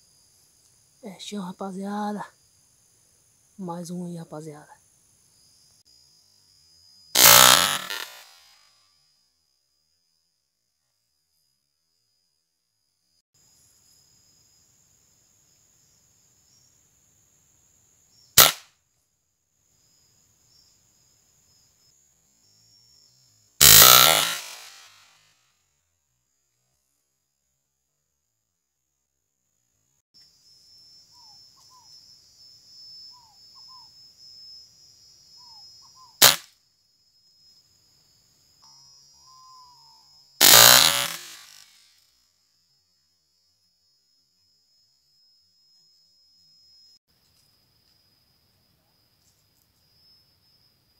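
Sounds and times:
insects buzzing: 0.0s - 10.2s, 13.0s - 18.8s, 19.5s - 25.2s, 29.5s - 50.9s
rifle shot: 7.2s - 8.4s, 18.4s - 18.6s, 23.6s - 25.0s, 36.2s - 36.5s, 40.4s - 41.8s
faint high-pitched tone: 42.9s - 47.4s.

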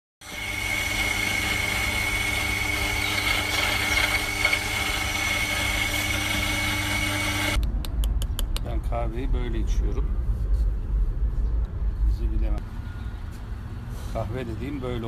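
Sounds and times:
electric coffee grinder running: 0.2s - 7.6s.

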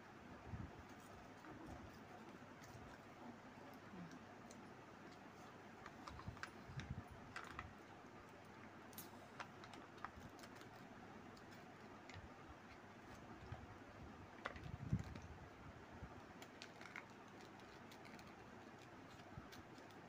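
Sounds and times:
plastic cup clicks and crinkles: 5.8s - 7.8s, 14.3s - 15.3s, 16.3s - 20.0s.

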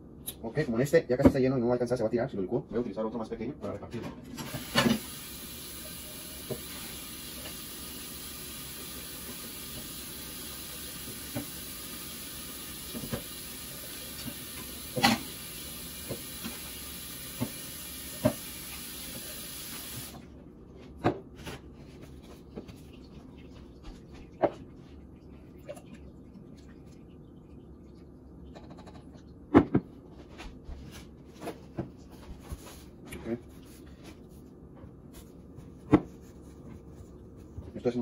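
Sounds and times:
water running from tap: 4.4s - 20.2s.

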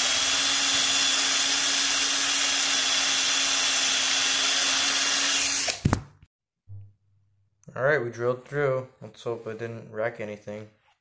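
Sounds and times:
cordless drill whining: 0.0s - 5.9s.

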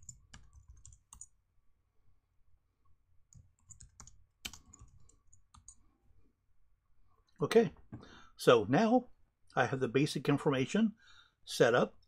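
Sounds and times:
faint keyboard typing: 0.0s - 1.4s, 3.3s - 5.9s.

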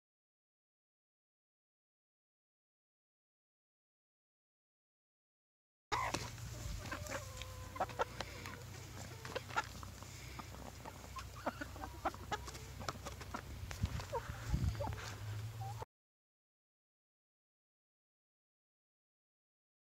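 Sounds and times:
hens clucking softly: 5.9s - 15.8s.

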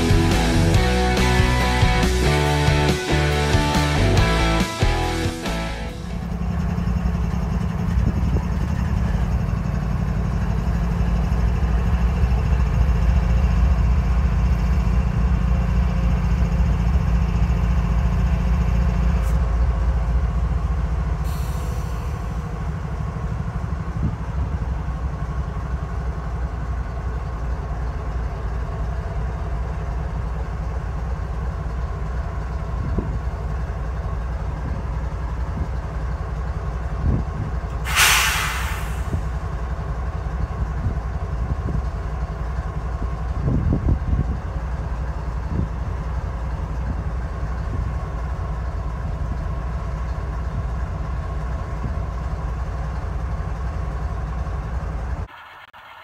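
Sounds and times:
diesel locomotives idling: 0.0s - 56.0s
air hiss: 37.8s - 39.4s.

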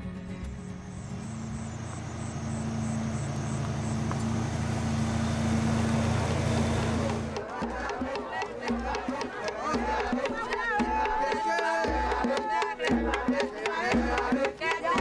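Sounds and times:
suv engine driving by: 0.0s - 8.3s.

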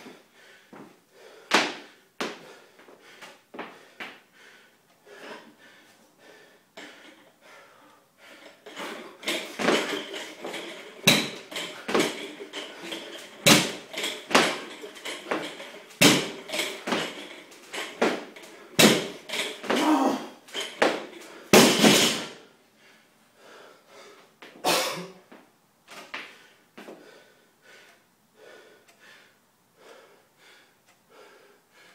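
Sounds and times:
weight plates clattering: 8.3s - 22.4s
barbell dropping on floor: 8.6s - 22.4s.

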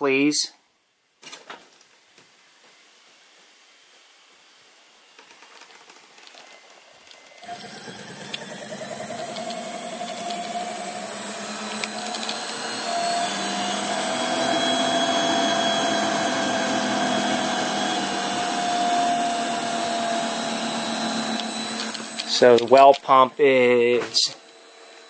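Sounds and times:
booster pump running with high whine: 7.4s - 25.0s.

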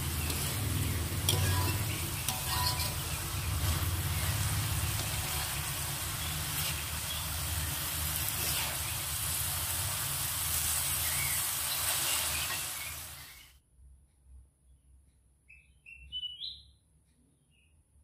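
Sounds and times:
metal spatula scraping a pan: 0.0s - 9.5s
vegetables sizzling in a wok: 0.0s - 13.5s.

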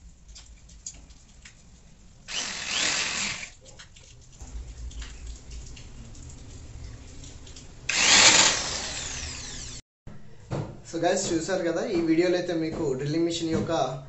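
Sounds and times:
electric drill driving a screw: 2.3s - 3.5s, 7.9s - 9.8s.

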